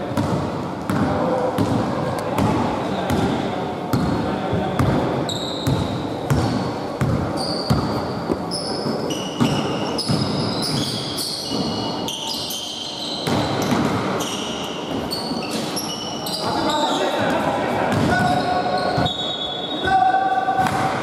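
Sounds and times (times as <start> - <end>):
sneakers squeaking on court: 3.1 - 4.2, 4.8 - 17.2, 17.9 - 19.9
basketball bouncing on wooden floor: 5.6 - 8.4.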